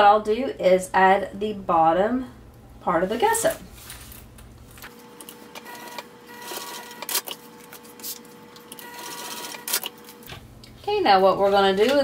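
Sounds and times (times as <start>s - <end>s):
sewing machine stitching: 8.8s - 9.9s.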